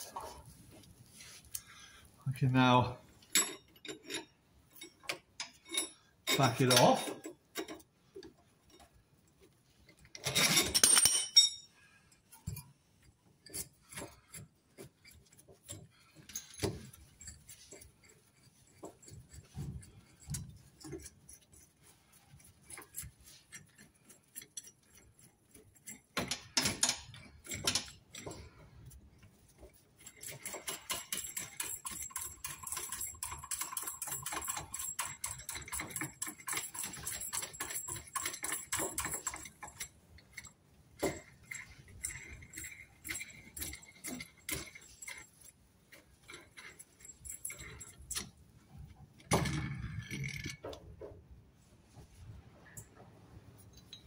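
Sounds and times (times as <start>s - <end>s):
metal hand tools clinking: 3.2s - 7.9s, 9.9s - 11.8s, 12.4s - 48.5s.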